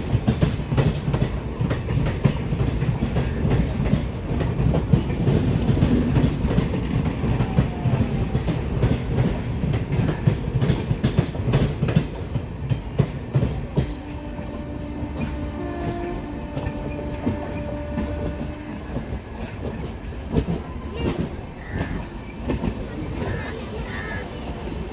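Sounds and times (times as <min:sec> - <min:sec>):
train rumble: 0:00.0 - 0:24.9
train wheels clacking over rail joints: 0:00.0 - 0:24.9
train horn: 0:13.8 - 0:19.3.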